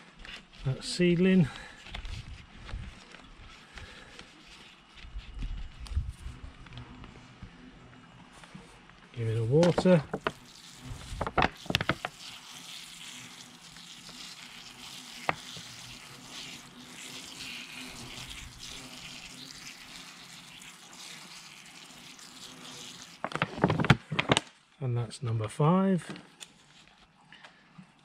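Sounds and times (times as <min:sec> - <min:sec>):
water spray hissing onto soil: 0:09.2 - 0:24.0.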